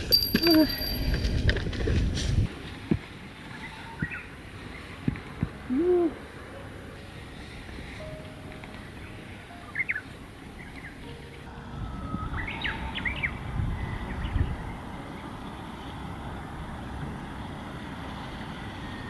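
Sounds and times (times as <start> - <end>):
wind rumbling on microphone: 0.0 - 4.2, 11.6 - 19.0
small birds singing: 7.4 - 19.0.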